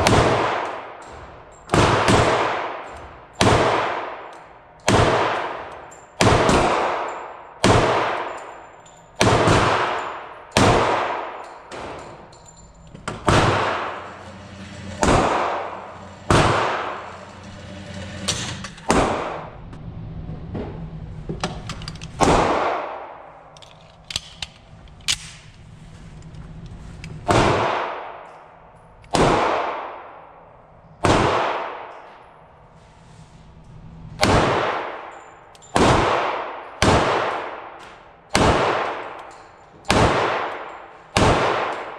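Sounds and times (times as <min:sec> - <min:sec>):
pistol shots ringing: 0:00.0 - 0:08.6, 0:09.2 - 0:12.4, 0:34.2 - 0:41.9.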